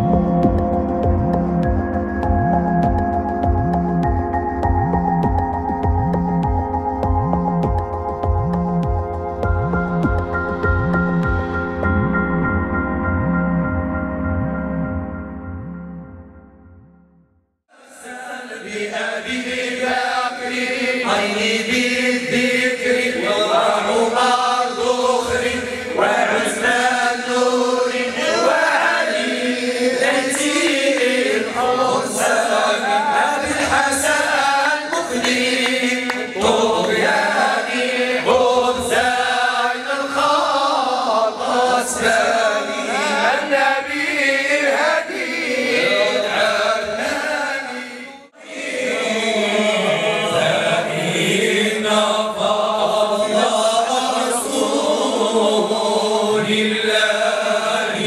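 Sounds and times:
men chanting together: 17.7s - 58.0s.

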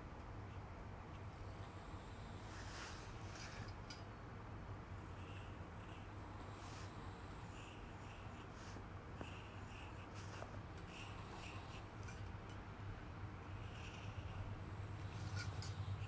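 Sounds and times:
low steady hum: 0.0s - 16.0s
pencil scratching on paper: 5.0s - 12.3s, 13.5s - 16.0s.

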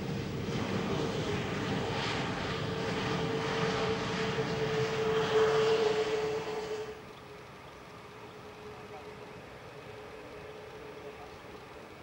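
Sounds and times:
jet engines rushing and whining: 0.0s - 7.1s.

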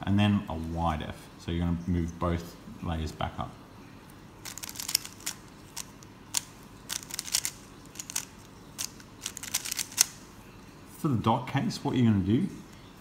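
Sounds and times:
plastic puzzle cube clicking: 4.4s - 10.2s.

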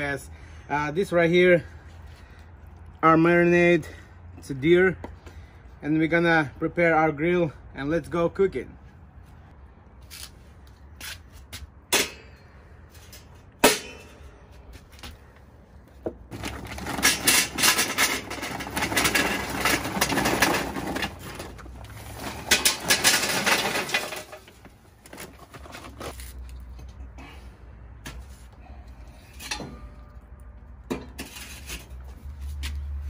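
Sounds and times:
charcoal pouring into metal chimney: 16.4s - 24.5s.

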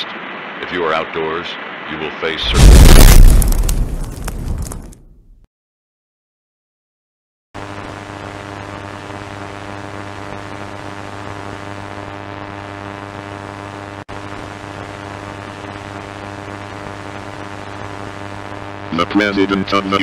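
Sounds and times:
radio static hiss: 0.0s - 3.3s, 7.6s - 20.0s
strong low hum: 2.4s - 4.4s.

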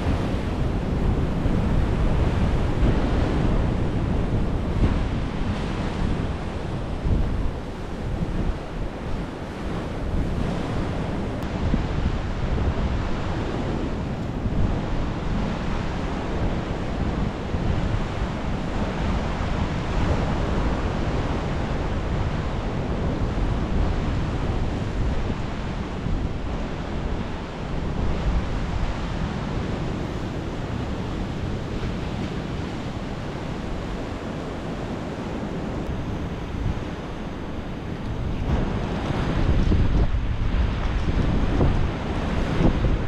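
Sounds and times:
ocean surf washing in: 0.0s - 43.0s
wind buffeting microphone: 0.0s - 43.0s.

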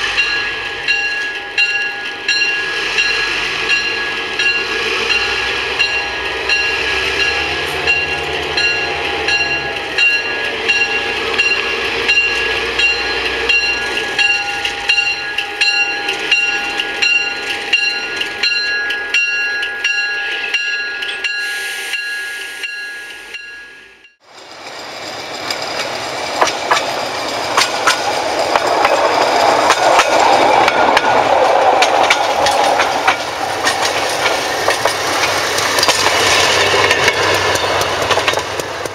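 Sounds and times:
locomotive bell ringing: 0.0s - 24.2s
diesel locomotive passing: 0.0s - 38.9s
rail clicks: 0.0s - 38.9s
railway speeder engines: 0.0s - 38.9s.

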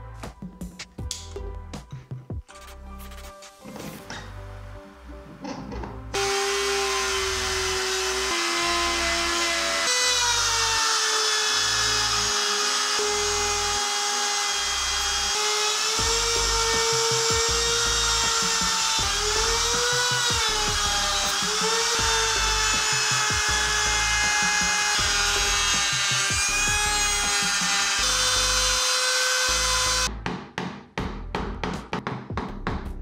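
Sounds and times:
router cutting wood: 6.1s - 30.1s.

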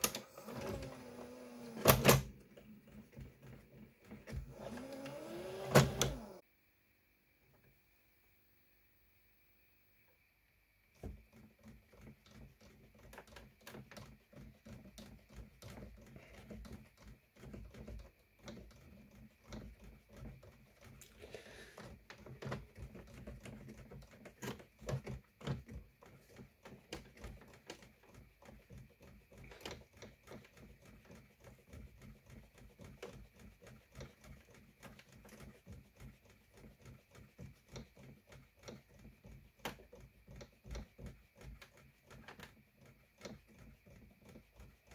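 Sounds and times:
tape mechanism whirring: 0.0s - 6.4s
gears and levers clicking: 4.4s - 6.4s.

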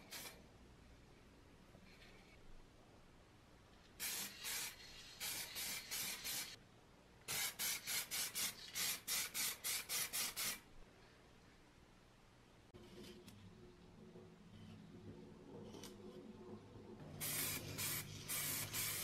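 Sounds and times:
spray-paint can bursts: 0.0s - 0.4s, 4.0s - 6.6s, 7.3s - 10.6s, 17.2s - 19.0s.

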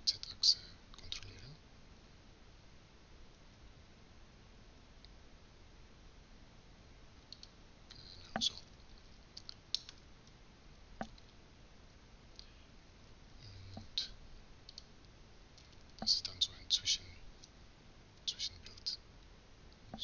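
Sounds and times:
faint room noise: 0.0s - 20.0s
mouse and keyboard clicks: 9.4s - 10.0s.

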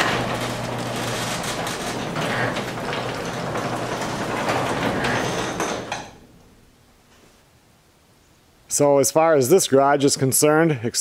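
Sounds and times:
garage door rollers clattering: 0.0s - 6.9s
garage door motor hum: 0.0s - 7.1s.

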